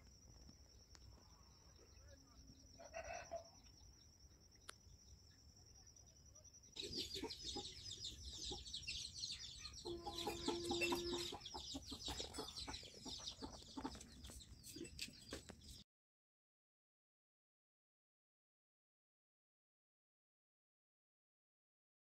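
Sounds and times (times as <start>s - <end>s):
faint high whine: 0.0s - 11.4s
small birds chirping: 0.0s - 15.8s
chickens clucking: 6.8s - 15.7s.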